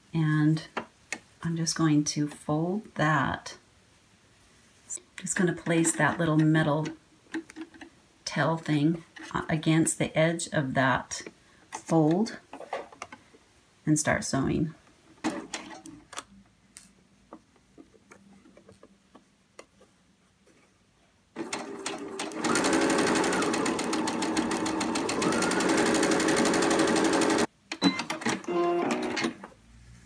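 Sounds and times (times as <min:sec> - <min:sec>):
sewing machine running: 0:21.4 - 0:27.5.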